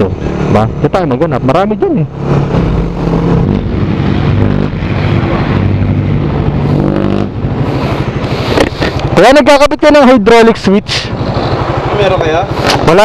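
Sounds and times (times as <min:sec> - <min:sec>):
motorcycle engine running: 0:02.0 - 0:09.5, 0:10.6 - 0:13.0.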